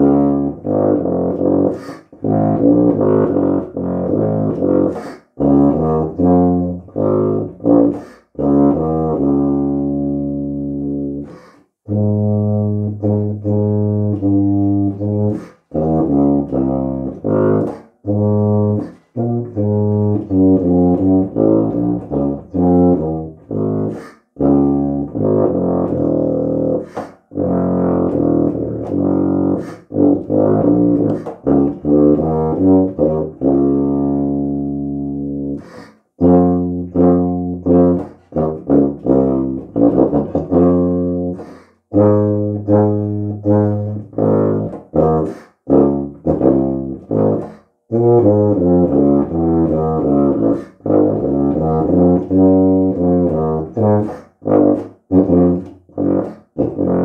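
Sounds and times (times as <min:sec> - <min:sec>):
solo tuba playing low notes: 0:00.0 - 0:57.0
player breathing: 0:01.7 - 0:02.2, 0:04.9 - 0:05.4, 0:08.0 - 0:08.3, 0:11.2 - 0:11.8, 0:15.3 - 0:15.7, 0:23.9 - 0:24.4, 0:26.8 - 0:27.3, 0:35.6 - 0:36.2, 0:41.4 - 0:41.9, 0:45.3 - 0:45.6, 0:47.4 - 0:47.8.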